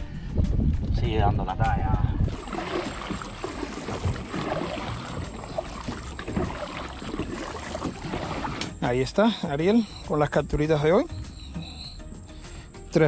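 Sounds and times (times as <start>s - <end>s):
paddle splashing in water: 2.3s - 8.8s.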